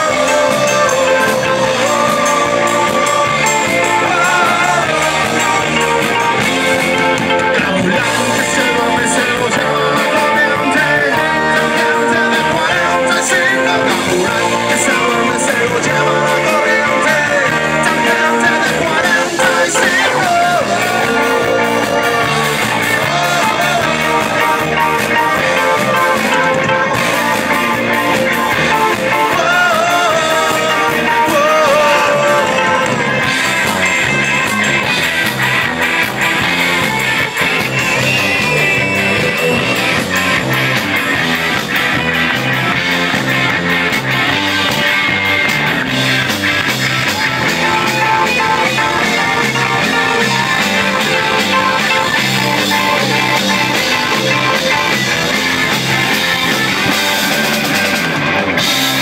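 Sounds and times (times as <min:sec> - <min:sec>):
person singing: 0:00.0 - 0:34.3
live rock band playing: 0:00.0 - 0:59.0.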